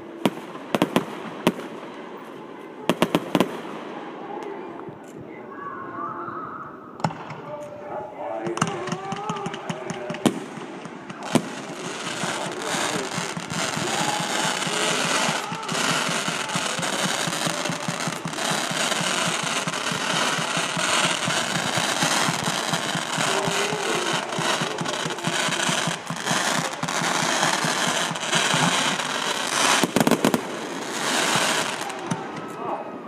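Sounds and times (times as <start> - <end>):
firework bangs: 0.0 - 4.7, 7.0 - 7.6, 8.4 - 33.0
rapid firework launches and bursts: 8.6 - 32.4.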